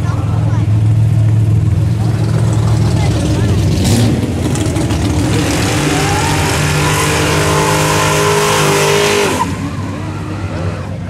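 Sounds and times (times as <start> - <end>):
car engine revving hard: 1.7 - 11.0
tyres screeching: 3.3 - 11.0.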